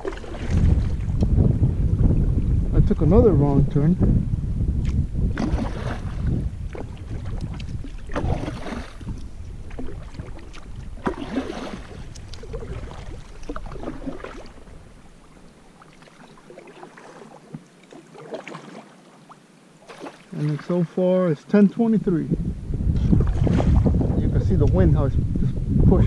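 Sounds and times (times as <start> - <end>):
paddle strokes splashing water: 0.0 - 1.3, 4.8 - 21.0, 23.1 - 24.0
wind rumbling on microphone: 0.0 - 17.3, 21.6 - 26.0.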